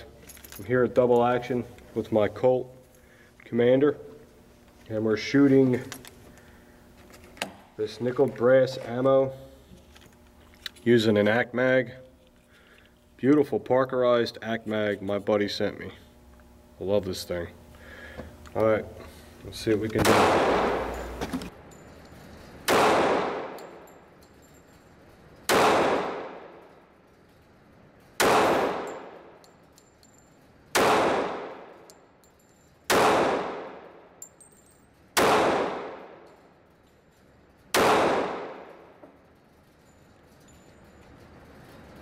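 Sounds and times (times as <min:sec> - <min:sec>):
pistol shots echoing indoors: 0:20.0 - 0:21.0, 0:22.7 - 0:23.8, 0:25.5 - 0:26.7, 0:28.2 - 0:29.4, 0:30.7 - 0:31.9, 0:32.9 - 0:34.1, 0:35.2 - 0:36.3, 0:37.7 - 0:39.0.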